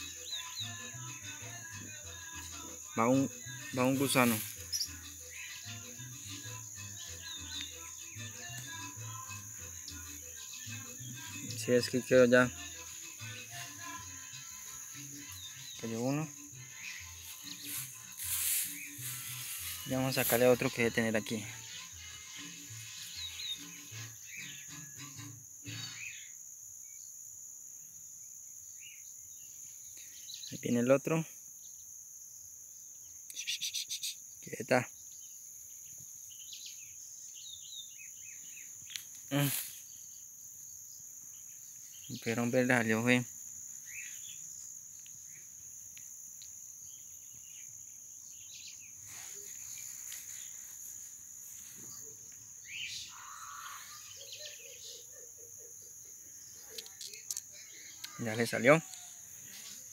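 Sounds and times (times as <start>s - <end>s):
crickets trilling: 0.0s - 59.9s
faint bird chirps: 2.9s - 8.8s, 32.9s - 59.9s
short bird calls: 33.3s - 34.2s, 51.8s - 55.8s.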